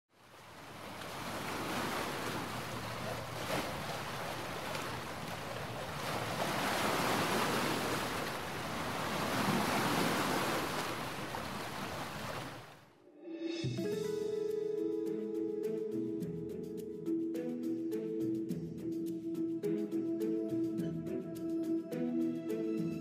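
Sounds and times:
wind: 0:00.1 - 0:13.9
sea surf: 0:00.2 - 0:14.1.

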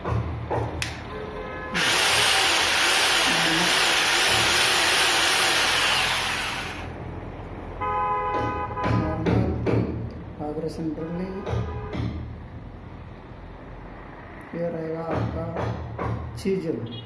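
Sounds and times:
rotary hammer motor whine: 0:01.8 - 0:06.9.

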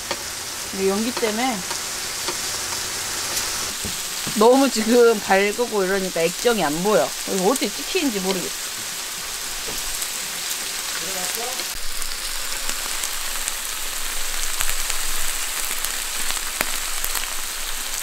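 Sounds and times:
fat popping and crackling: 0:00.0 - 0:18.0
meat sizzling on griddle: 0:00.0 - 0:18.0.

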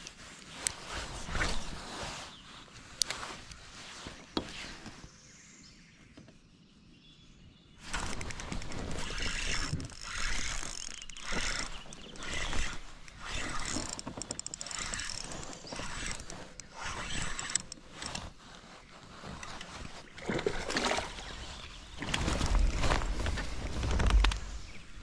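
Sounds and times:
kayak paddle splashing in water: 0:20.2 - 0:21.4.

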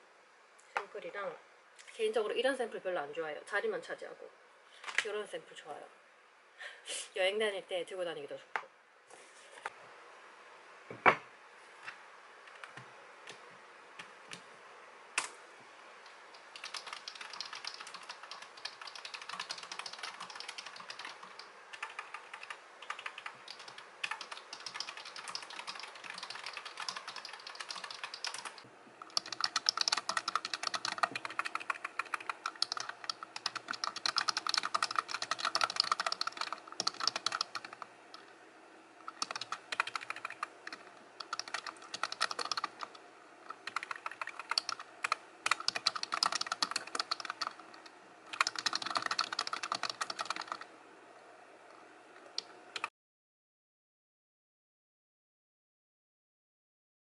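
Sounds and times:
fast typing on keyboard: 0:16.4 - 0:37.9, 0:39.1 - 0:50.7.

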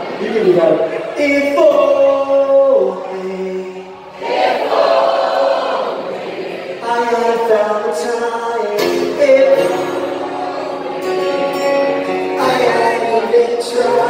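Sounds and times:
crowd singing along: 0:00.9 - 0:14.0
vocalist singing: 0:01.1 - 0:04.2, 0:06.8 - 0:14.0.

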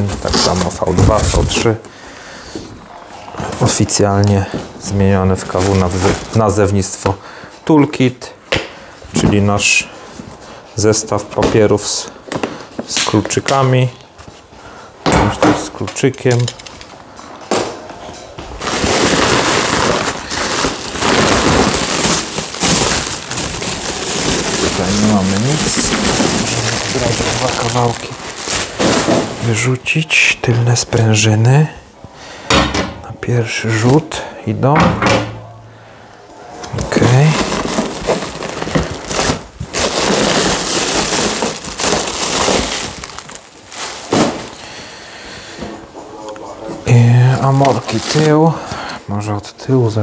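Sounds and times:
plastic wrapping crinkling: 0:03.2 - 0:07.0, 0:18.5 - 0:30.1, 0:36.7 - 0:44.8, 0:46.9 - 0:48.8.

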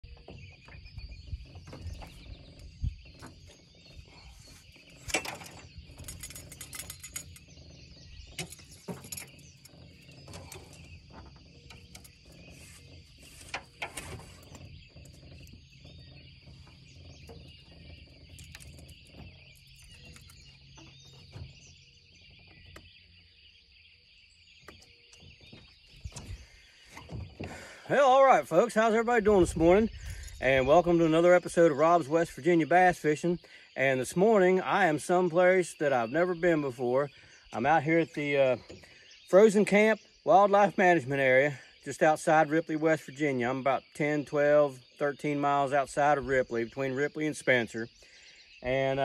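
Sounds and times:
birds chirping: 0:00.0 - 0:49.0.

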